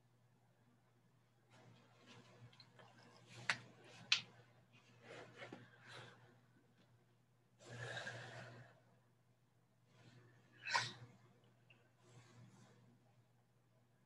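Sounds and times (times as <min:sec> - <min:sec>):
rustling and handling noise: 0:01.4 - 0:07.2.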